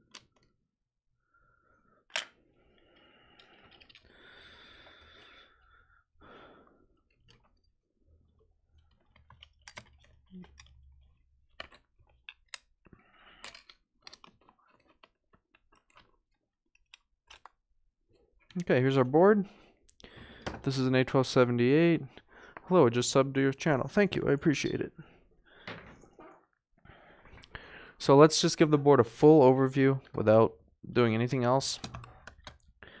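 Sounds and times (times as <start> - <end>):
parts rustling: 2.1 - 4.2, 6.9 - 17.6
small clicks and taps: 8.8 - 17.6.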